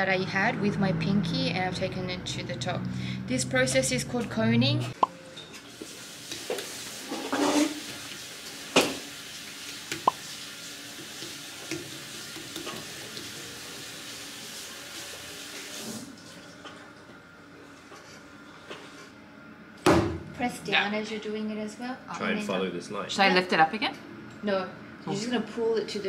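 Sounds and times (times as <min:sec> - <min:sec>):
wet clay hissing on pottery wheel: 0:05.8 - 0:16.0.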